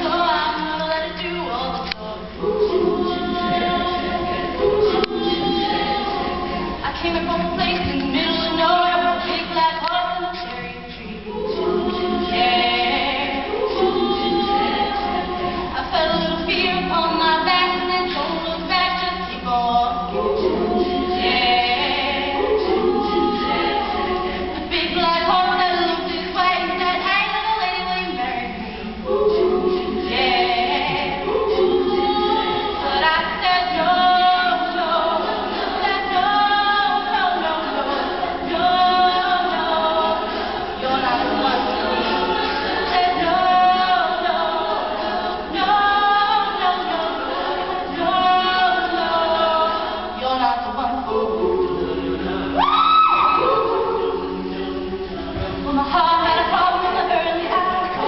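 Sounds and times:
women singing a cappella: 0.0s - 58.0s.

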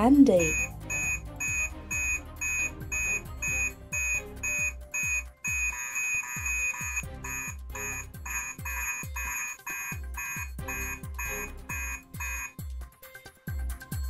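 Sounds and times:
music with thumping beat: 0.0s - 14.0s
high alarm-like beeps: 0.4s - 12.6s.

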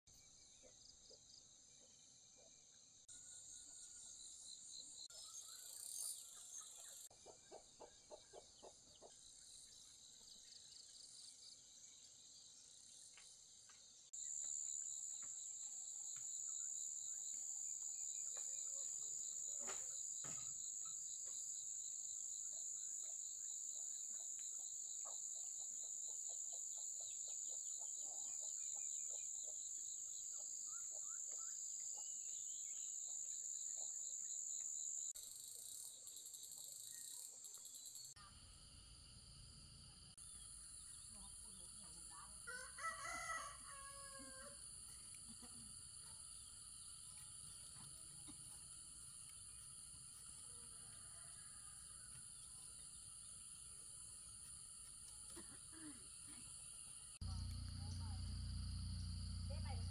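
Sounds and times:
insects trilling: 14.2s - 59.9s.

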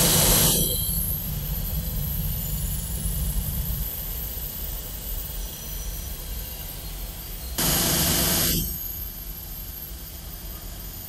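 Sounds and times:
steady low hum: 6.0s - 9.4s
loud hiss: 7.6s - 9.2s.

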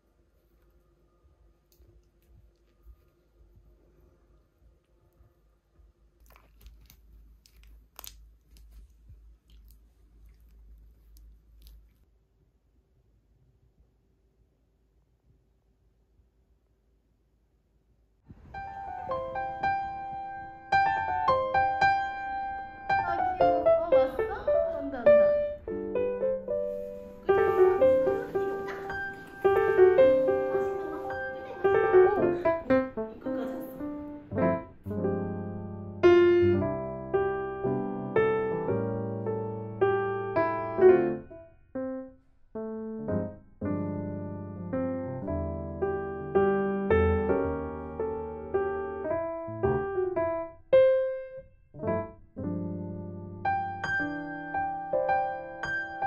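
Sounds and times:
crunchy chewing: 6.1s - 12.0s
piano melody: 18.3s - 56.0s.

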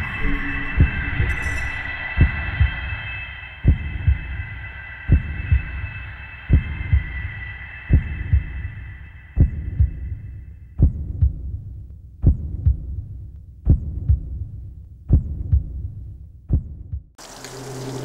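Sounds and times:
faint high ringing: 0.0s - 10.6s
slow heartbeat thumps: 0.0s - 17.2s.

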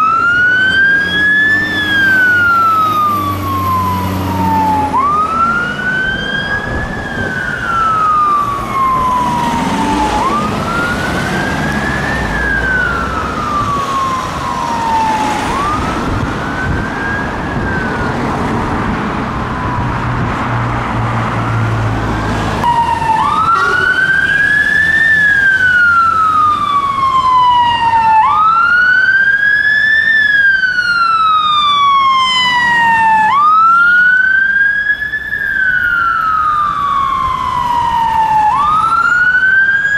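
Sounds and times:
ambulance siren wailing: 0.0s - 39.9s
fire engine siren wailing: 0.0s - 39.9s.

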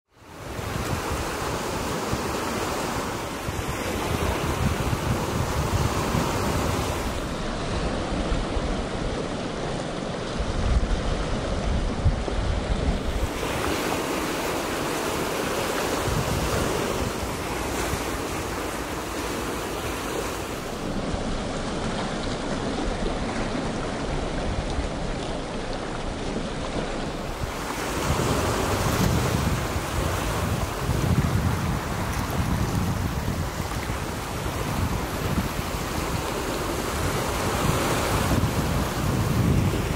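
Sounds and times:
wind buffeting microphone: 0.2s - 39.9s
water washing: 12.8s - 39.9s.

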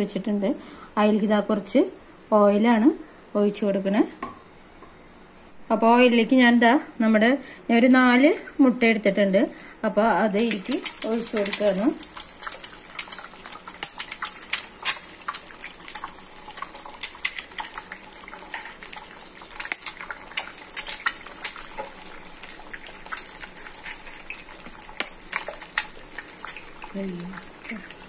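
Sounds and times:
eggs sizzling in oil: 9.3s - 28.0s
oil crackling and popping: 9.5s - 28.0s.

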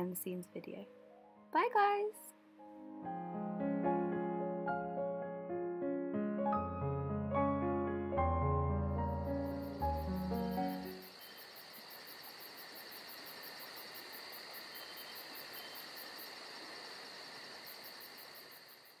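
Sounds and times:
piano music: 2.4s - 11.1s
insects chirping rhythmically: 8.9s - 19.0s.

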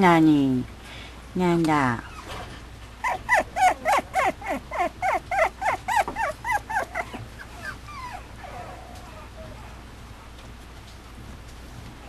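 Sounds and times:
puppy yelping: 2.0s - 9.8s.

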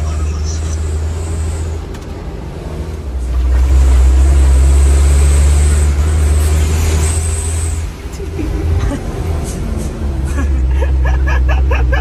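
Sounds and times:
truck engine droning: 0.0s - 12.0s.

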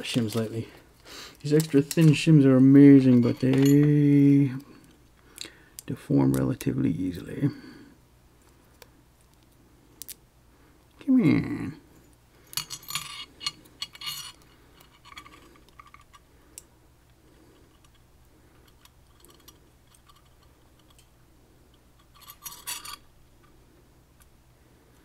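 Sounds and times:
lock and metal tools clicking: 1.4s - 2.3s, 12.5s - 16.7s, 18.6s - 21.1s, 21.7s - 23.1s.

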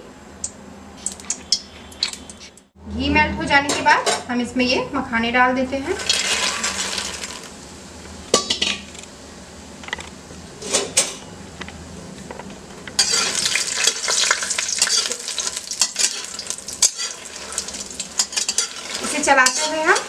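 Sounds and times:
spatula scraping and rattling in pan: 13.0s - 20.0s.

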